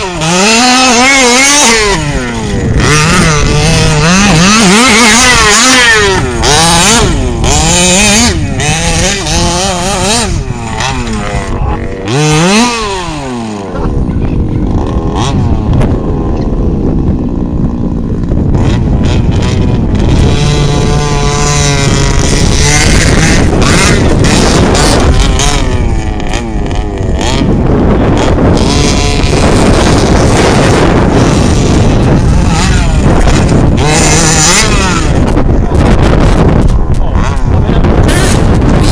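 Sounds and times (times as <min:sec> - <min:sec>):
two-stroke engine revving: 0:00.0 - 0:38.9.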